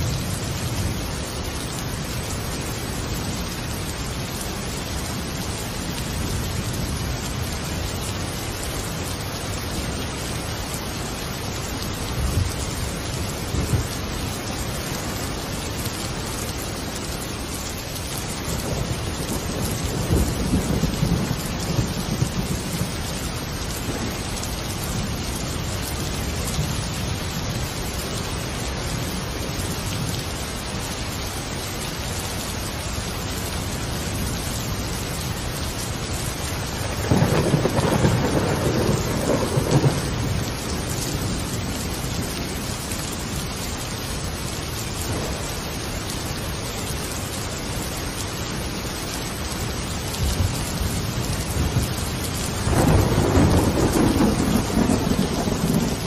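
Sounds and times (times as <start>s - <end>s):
steady rain: 0.0s - 56.0s
thunder rumbling: 18.4s - 25.4s, 36.6s - 42.6s, 50.2s - 56.0s.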